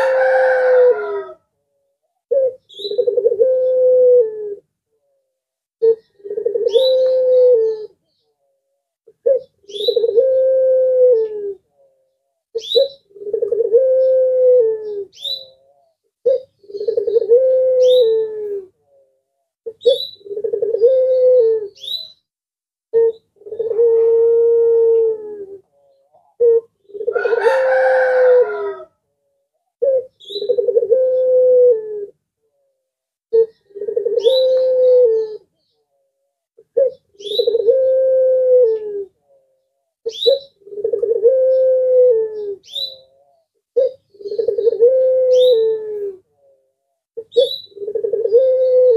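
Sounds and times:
dove cooing: 0.0s - 22.2s, 22.9s - 48.9s.

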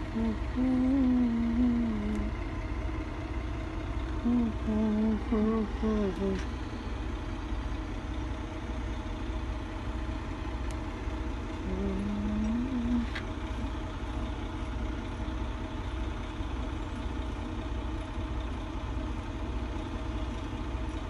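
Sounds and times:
person humming: 0.0s - 2.4s, 4.2s - 6.5s, 11.6s - 13.2s
pulsing mechanical hum: 0.0s - 21.0s.

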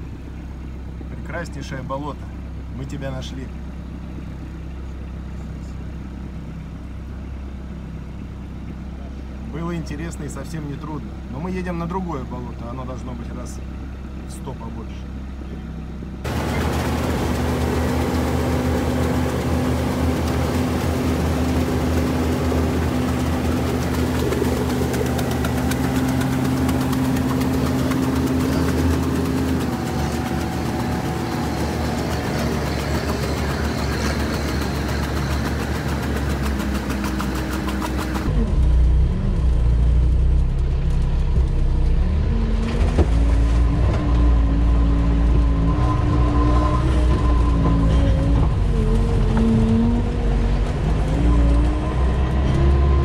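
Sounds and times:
diesel engine running: 0.0s - 53.0s
water splashing: 16.3s - 38.3s.

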